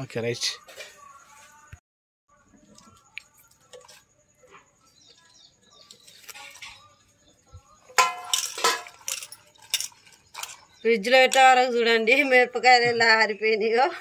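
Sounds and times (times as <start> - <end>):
metal utensils clanking: 7.8 - 11.7
chillies tapping and splashing: 7.9 - 11.7.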